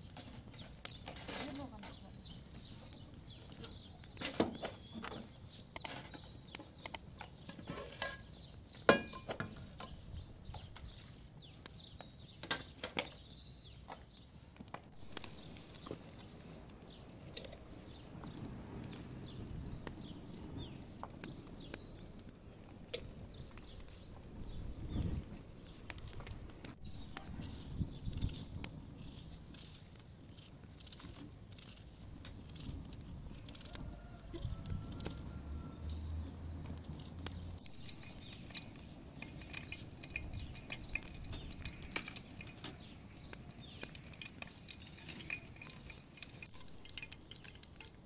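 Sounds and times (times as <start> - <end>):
pots and utensils knocking: 7.6 - 9.6.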